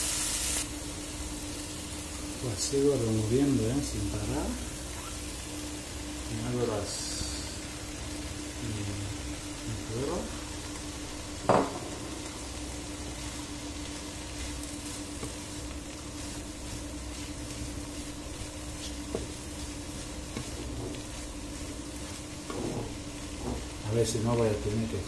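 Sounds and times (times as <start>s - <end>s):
vegetables sizzling in frying pan: 0.0s - 25.0s
wooden spatula stirring: 12.9s - 24.9s.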